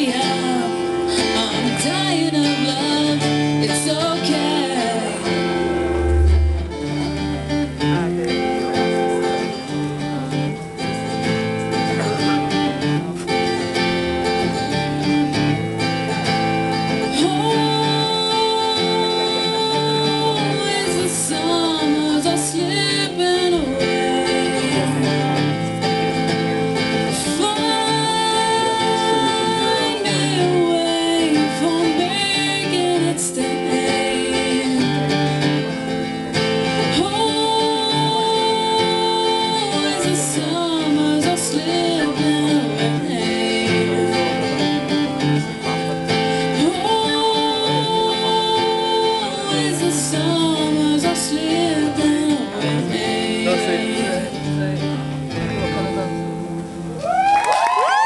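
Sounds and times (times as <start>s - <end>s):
woman singing: 0.0s - 7.2s, 16.2s - 25.6s, 26.2s - 45.5s, 46.1s - 54.6s
acoustic guitar playing: 0.0s - 58.0s.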